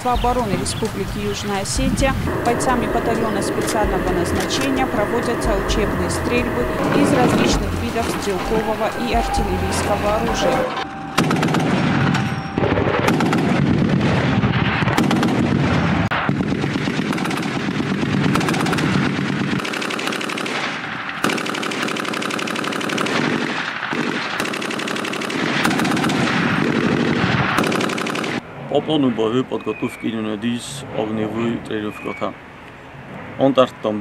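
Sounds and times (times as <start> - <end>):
heavy machine-gun bursts: 16.3 - 28.4.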